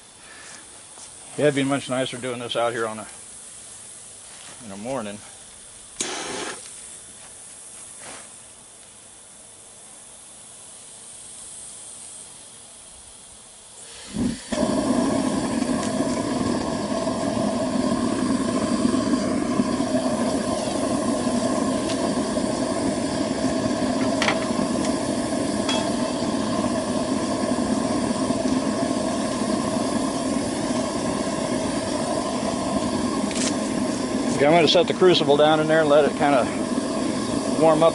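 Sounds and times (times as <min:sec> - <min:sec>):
burner igniting: 0:00.0 - 0:09.5, 0:10.2 - 0:37.9
burner flame roaring: 0:13.8 - 0:37.9.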